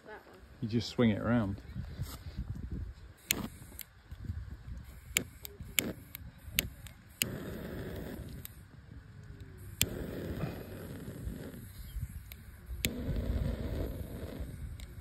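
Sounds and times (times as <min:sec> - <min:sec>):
lighter clicking: 0:09.7 - 0:10.4.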